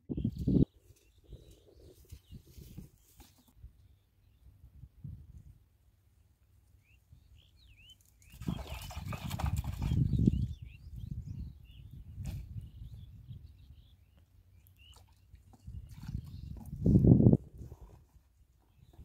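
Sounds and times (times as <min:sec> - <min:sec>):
small birds chirping: 0:00.0 - 0:04.6, 0:06.7 - 0:17.1, 0:18.5 - 0:19.0.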